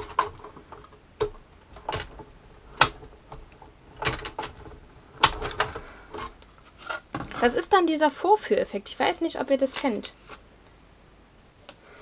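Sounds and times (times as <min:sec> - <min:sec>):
plastic clicks and knocks of machine: 0:00.0 - 0:06.3.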